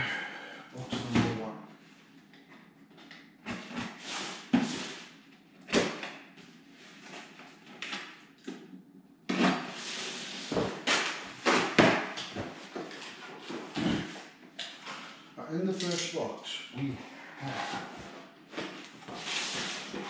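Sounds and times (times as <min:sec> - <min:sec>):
cardboard rustling and scraping: 0:17.5 - 0:20.0.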